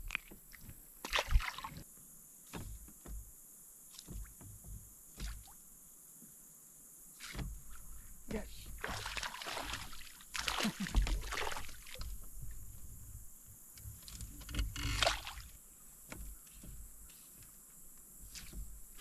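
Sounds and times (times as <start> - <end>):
paddle splashing water: 0.0 - 1.8, 7.2 - 19.0.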